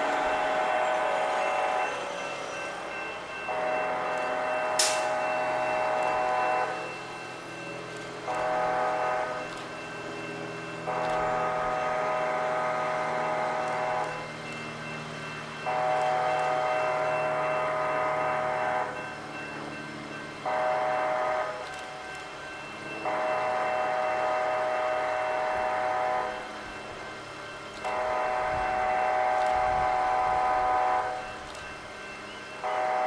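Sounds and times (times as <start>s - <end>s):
train horn blasts: 0.0s - 2.6s, 3.3s - 7.0s, 8.2s - 9.6s, 10.8s - 14.4s, 15.4s - 19.2s, 20.4s - 21.8s, 22.8s - 26.6s, 27.8s - 31.4s, 32.6s - 33.0s
train rumble: 0.0s - 33.0s.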